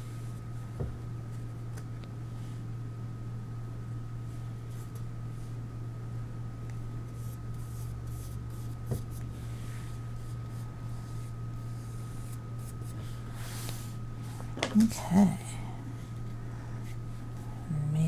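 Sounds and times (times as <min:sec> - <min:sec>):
paintbrush strokes on paper: 0:07.1 - 0:14.4.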